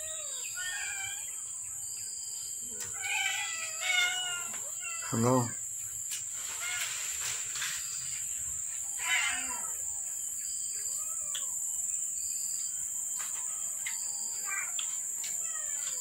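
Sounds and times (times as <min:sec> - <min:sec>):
high insect buzz: 0:00.0 - 0:16.0
cat meowing: 0:03.0 - 0:05.2, 0:09.0 - 0:09.8, 0:10.9 - 0:11.6.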